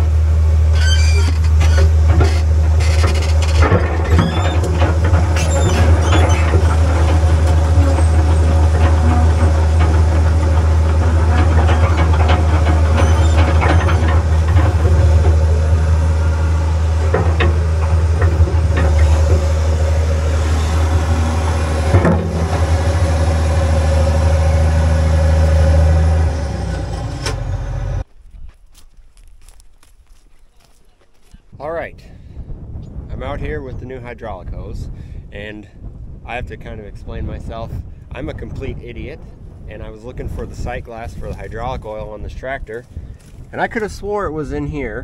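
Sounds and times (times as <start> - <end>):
excavator diesel engine running: 0.0 - 28.1
metal bucket clanks: 1.4 - 16.2, 16.9 - 20.1.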